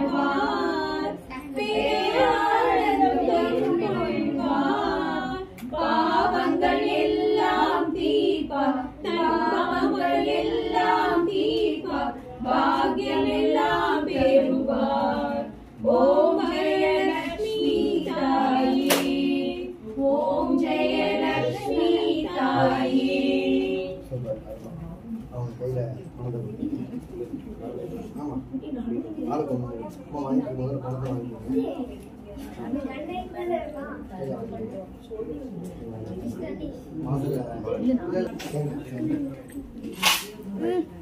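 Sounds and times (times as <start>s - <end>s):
women singing together: 0.0s - 24.1s.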